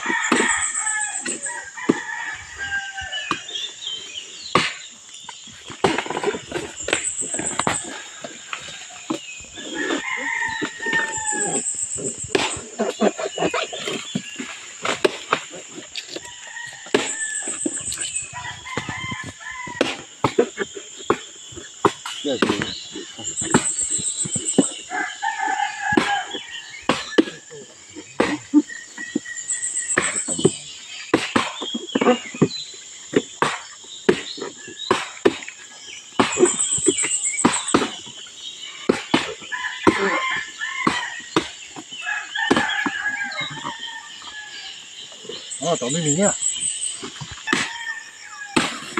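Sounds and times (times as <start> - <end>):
rooster crowing: 0.0 - 3.4, 9.6 - 11.6, 39.5 - 41.3.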